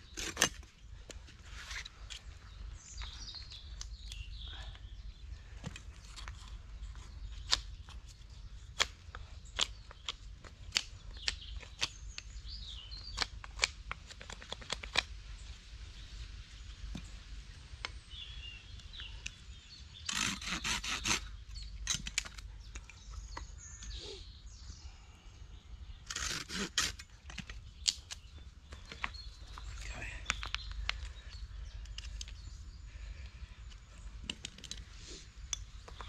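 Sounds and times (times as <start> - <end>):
pruning saw cutting stick: 0.1 - 0.6, 20.0 - 22.4, 26.0 - 27.4
small handling clicks: 26.0 - 32.5, 33.6 - 34.9.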